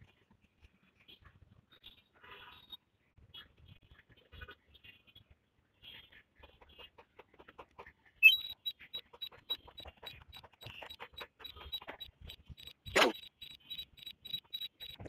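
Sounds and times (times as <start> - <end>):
high-pitched short beeps: 8.2 - 8.7, 12.0 - 15.0
rising chirp: 8.2 - 8.8.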